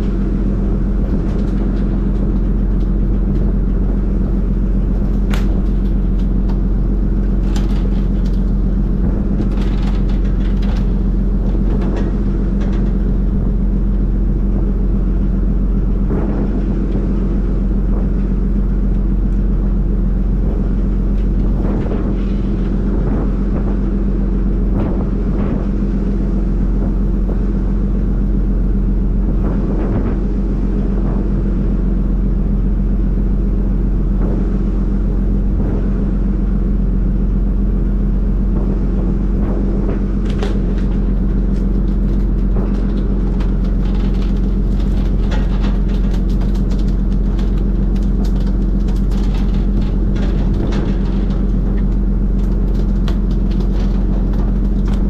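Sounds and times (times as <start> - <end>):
boat engine droning: 0.0 - 55.0
fish slapping and clicks: 39.5 - 55.0.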